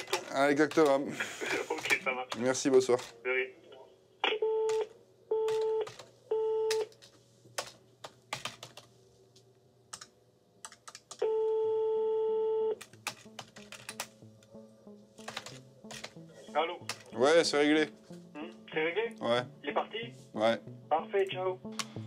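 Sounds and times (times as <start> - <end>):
telephone busy tone beeps: 4.4 - 6.8, 11.2 - 12.8
telephone ringback tone: 4.4 - 6.8, 11.2 - 12.8
keyboard keys clicking: 6.7 - 8.9, 9.9 - 11.2, 12.8 - 14.6, 15.2 - 16.2, 16.8 - 17.1.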